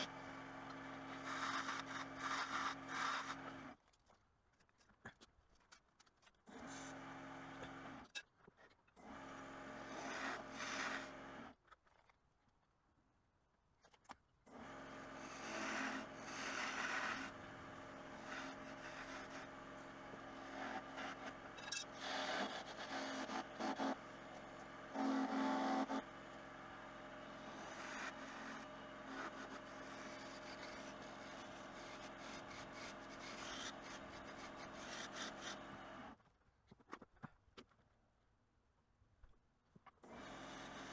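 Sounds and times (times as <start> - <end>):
wood lathe motor hum: 0.0 - 3.7, 9.0 - 11.5, 14.5 - 36.2
turning tool scraping wood: 0.7 - 8.8, 9.7 - 12.1, 14.9 - 26.1, 27.1 - 35.9.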